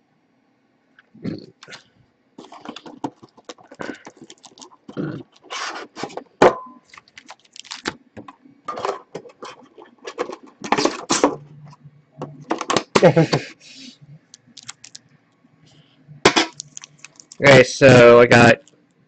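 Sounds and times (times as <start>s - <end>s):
plastic packaging crinkling: 2.4s - 8.0s, 14.3s - 15.0s, 16.4s - 17.6s.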